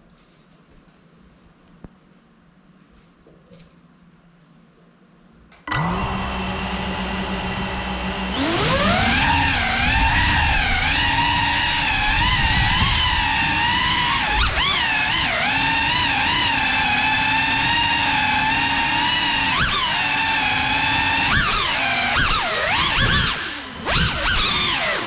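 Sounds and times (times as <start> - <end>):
drone motors whining: 5.7 - 25.0.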